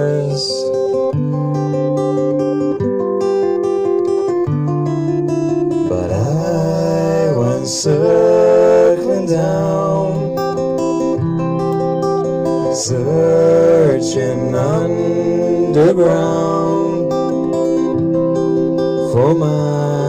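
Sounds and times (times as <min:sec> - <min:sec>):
two men singing: 0:00.0 - 0:00.7, 0:05.9 - 0:10.4, 0:12.6 - 0:17.6, 0:19.1 - 0:20.0
electric guitar: 0:00.0 - 0:20.0
strummed acoustic guitar: 0:00.0 - 0:20.0.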